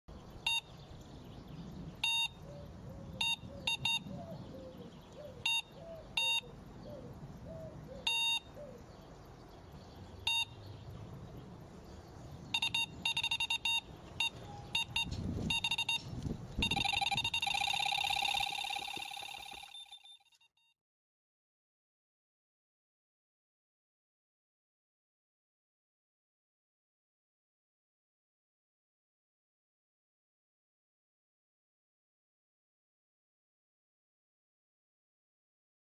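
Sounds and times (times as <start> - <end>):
electronic computer beeps: 0.4 - 0.7, 2.0 - 2.4, 3.2 - 4.1, 5.4 - 6.5, 8.1 - 8.5, 10.2 - 10.6, 12.5 - 20.4.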